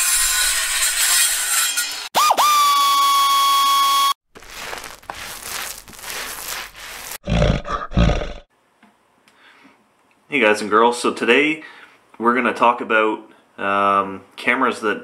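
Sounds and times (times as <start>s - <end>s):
bear roaring: 7.2s - 8.5s.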